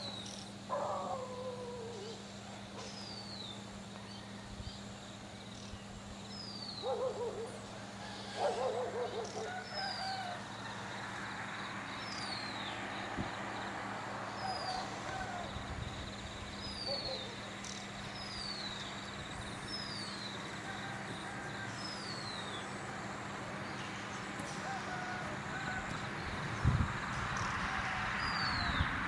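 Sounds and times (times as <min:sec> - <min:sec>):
birds chirping: 0:00.0 - 0:26.6
steady low hum: 0:00.0 - 0:27.5.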